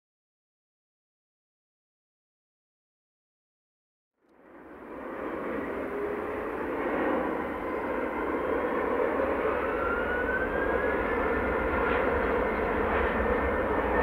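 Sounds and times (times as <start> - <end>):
faint rising engine whine: 4.2 - 14.0
jet engines running: 4.3 - 14.0.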